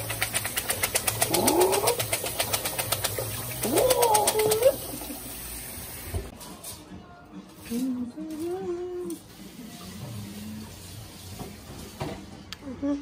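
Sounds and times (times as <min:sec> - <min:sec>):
fast regular clicking: 0:00.0 - 0:03.4
tap water rinsing beans in colander: 0:00.0 - 0:06.3
rising vocal calls: 0:03.6 - 0:05.0.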